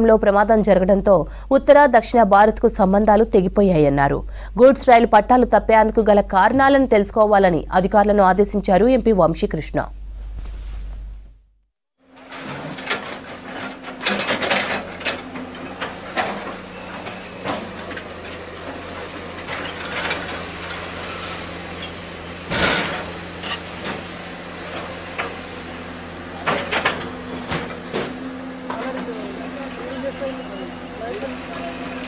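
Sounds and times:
steady low hum: 0.0 - 11.4
metallic clanks and knocks: 12.2 - 21.0.

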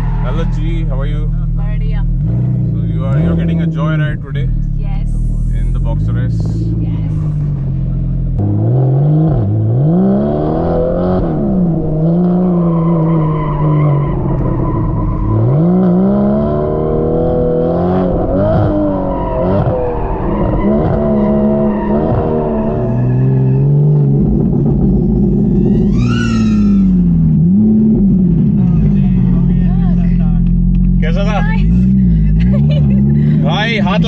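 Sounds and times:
car engine revving hard: 2.1 - 4.5, 8.4 - 29.6
tyres squealing: 25.6 - 27.0.

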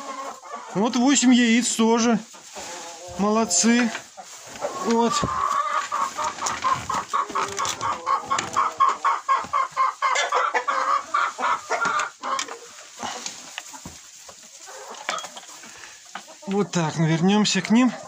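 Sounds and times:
chickens clucking: 0.0 - 18.0.

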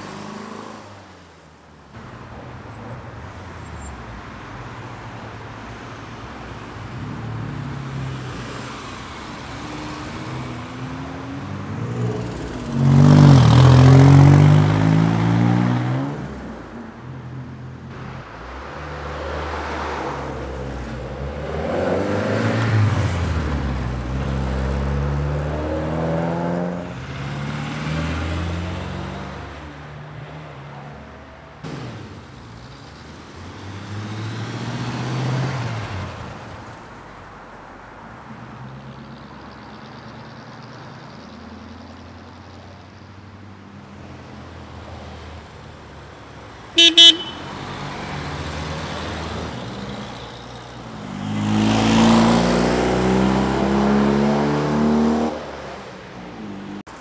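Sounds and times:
cars accelerating past: 7.0 - 16.6, 18.2 - 30.7, 31.6 - 36.6, 46.7 - 56.9.

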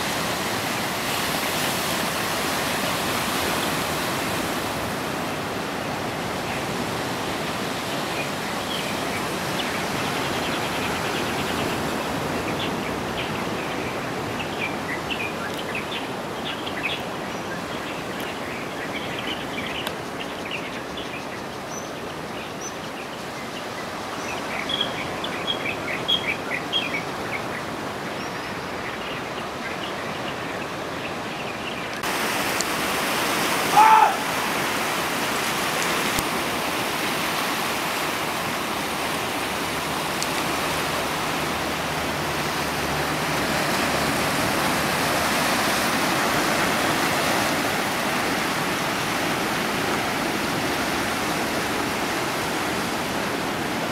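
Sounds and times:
surf washing on rocky shore: 0.0 - 28.6, 29.3 - 53.9
loud rising whistle-like call: 33.7 - 34.4.

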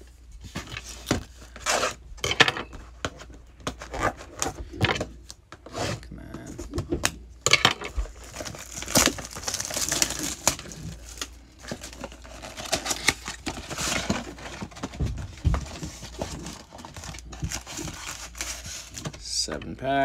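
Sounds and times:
plastic wrap tearing and crinkling: 8.0 - 19.2.

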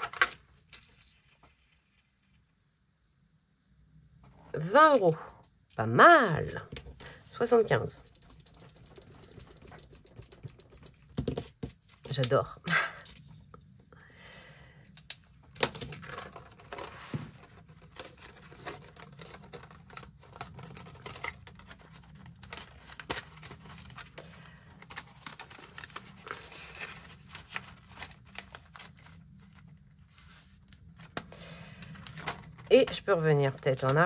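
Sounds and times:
paper rustling: 15.8 - 31.2.

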